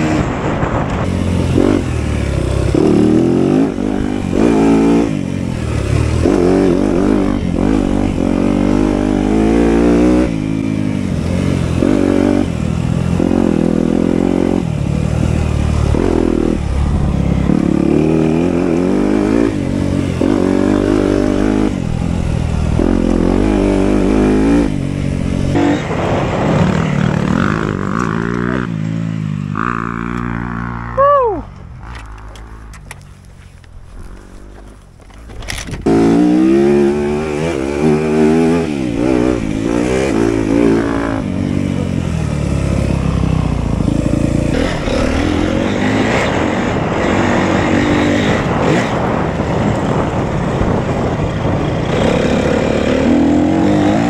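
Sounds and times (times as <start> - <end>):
motorbike engine revving: 0.0 - 54.0.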